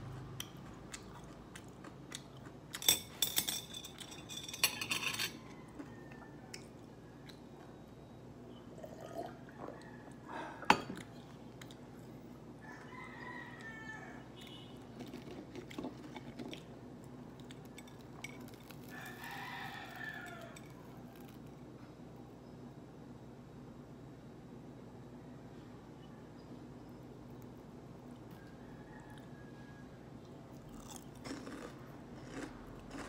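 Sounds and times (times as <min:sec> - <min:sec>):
rooster crowing: 0:05.0 - 0:07.1, 0:09.2 - 0:10.6, 0:12.6 - 0:14.7, 0:18.8 - 0:21.2, 0:28.3 - 0:30.2.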